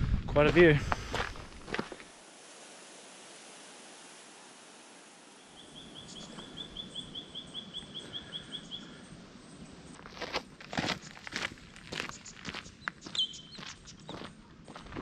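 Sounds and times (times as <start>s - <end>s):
footsteps on dirt trail: 0.0s - 2.2s, 9.9s - 15.0s
soft outdoor breeze: 0.0s - 15.0s
small bird chirping: 5.4s - 10.1s, 11.9s - 14.8s.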